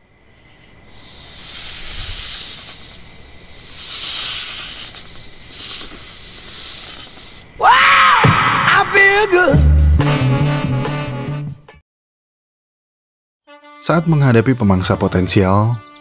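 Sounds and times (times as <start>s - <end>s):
snake hissing: 0.8s - 8.1s.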